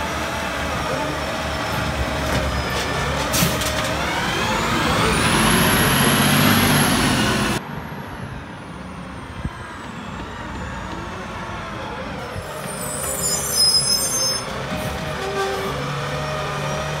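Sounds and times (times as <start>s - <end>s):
garbage truck accelerating: 0.0s - 8.0s, 14.4s - 17.0s.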